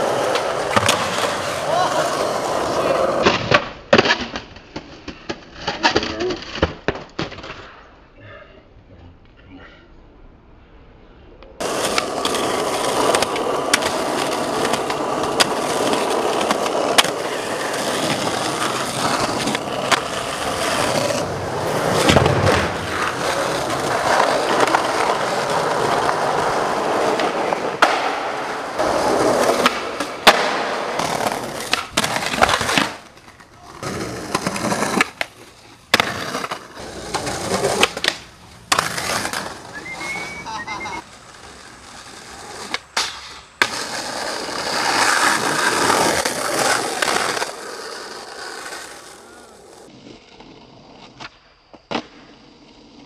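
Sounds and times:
skateboard wheels rolling: 0.0 - 8.0, 11.6 - 53.0
skateboard clacking down: 11.6 - 49.8.

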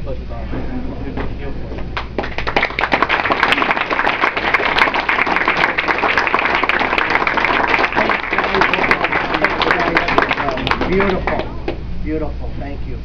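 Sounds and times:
crowd applauding: 2.0 - 11.8.

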